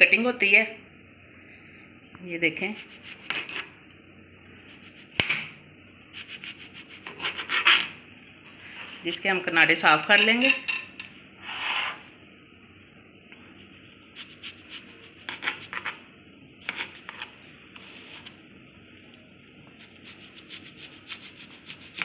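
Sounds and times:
knife sawing through bread: 6.2 - 7.9, 20.0 - 22.0.

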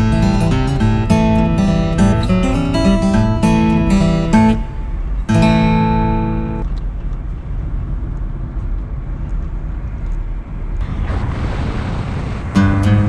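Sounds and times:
acoustic guitar plucked and strummed: 0.0 - 6.6, 12.5 - 13.0
steady low rumble: 0.0 - 13.0.

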